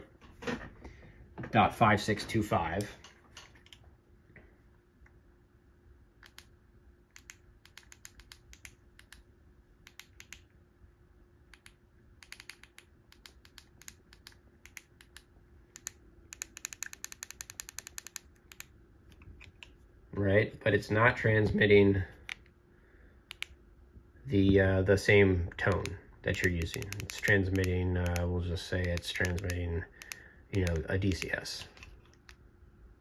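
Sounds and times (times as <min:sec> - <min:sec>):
faint steady hum: 0:00.0 - 0:33.0
keys clicking: 0:11.6 - 0:19.7, 0:25.6 - 0:32.4.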